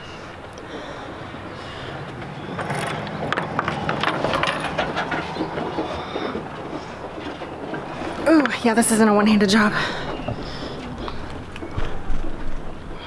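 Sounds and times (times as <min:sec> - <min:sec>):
chain rattling: 0:02.4 - 0:06.0.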